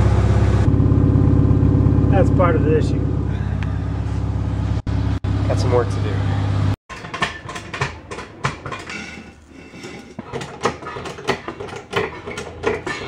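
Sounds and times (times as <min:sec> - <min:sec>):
floor jack clicking and clanking: 0:06.9 - 0:13.0.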